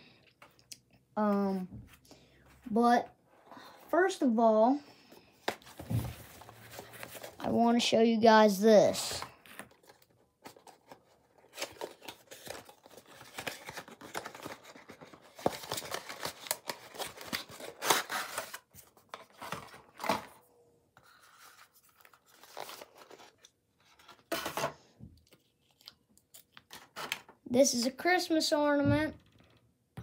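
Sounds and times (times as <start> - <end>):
cardboard and plastic crinkling: 9.4 - 20.4, 21.2 - 27.4.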